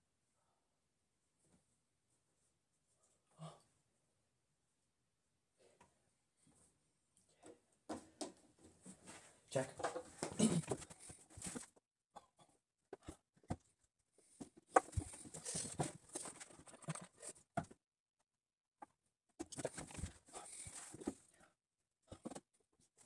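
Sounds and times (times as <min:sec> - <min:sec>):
rustling and handling noises: 0:08.1 - 0:11.8, 0:13.0 - 0:17.8, 0:19.4 - 0:21.3.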